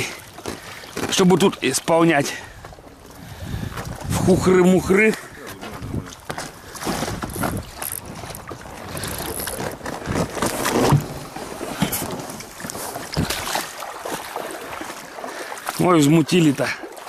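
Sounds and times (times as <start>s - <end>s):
river water splashing: 0.0s - 17.0s
knocks and scuffs on boat: 2.5s - 4.3s, 5.0s - 15.1s.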